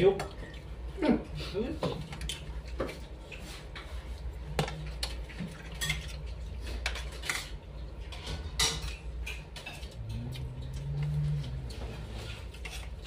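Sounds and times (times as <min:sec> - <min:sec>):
steady low hum: 0:00.0 - 0:13.0
spoons clinking on plates: 0:06.8 - 0:10.3.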